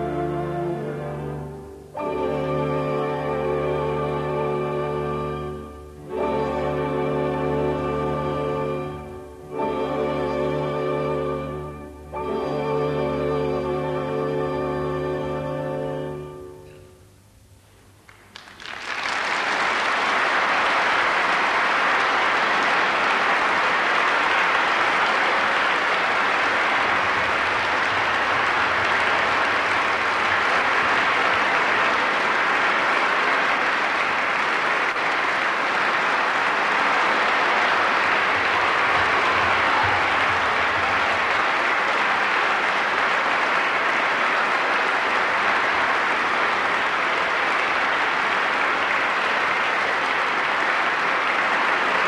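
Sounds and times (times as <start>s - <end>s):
audience applauding: 18.0s - 52.0s.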